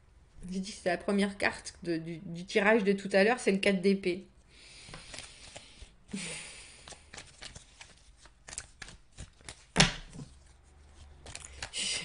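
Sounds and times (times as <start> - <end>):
cards flicking and tapping: 6.8 - 10.4, 11.2 - 11.9.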